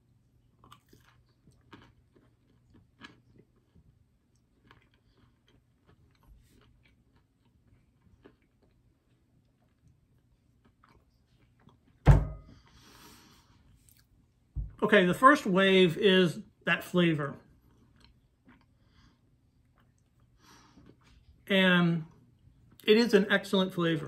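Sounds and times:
low steady hum: 0:00.0 - 0:24.0
person chewing: 0:00.2 - 0:12.0, 0:12.6 - 0:14.3, 0:17.4 - 0:21.4
loud thump: 0:12.1 - 0:12.5.

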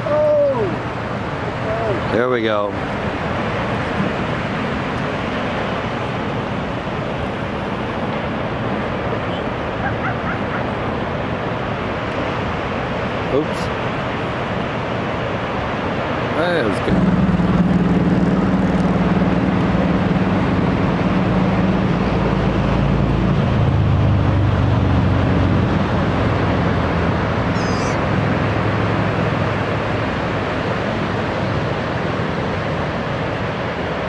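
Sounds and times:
surf breaking: 0:00.0 - 0:34.0
vehicle engine running: 0:16.7 - 0:30.2.

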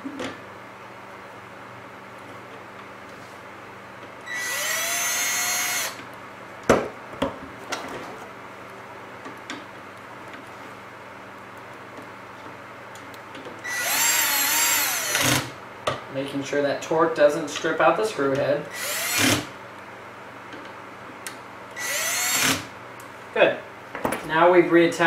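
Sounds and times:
cordless drill driving screws: 0:04.3 - 0:06.0, 0:13.6 - 0:15.5, 0:18.7 - 0:19.5, 0:21.8 - 0:22.7.

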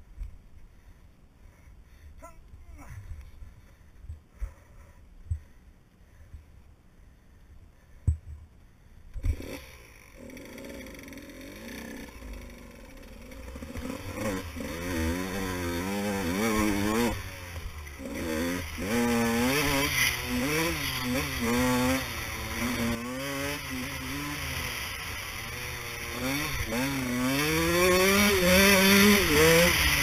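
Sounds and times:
motorcycle engine revving: 0:09.2 - 0:30.0.

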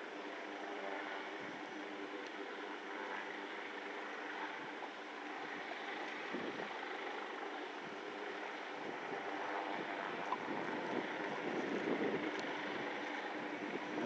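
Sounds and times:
low engine hum: 0:00.0 - 0:14.0
wind on microphone: 0:06.3 - 0:06.7, 0:09.7 - 0:14.0.

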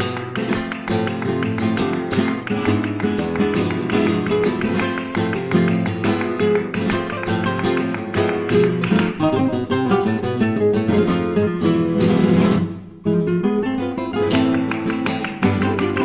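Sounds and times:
acoustic guitars flamenco-style: 0:00.0 - 0:16.0.

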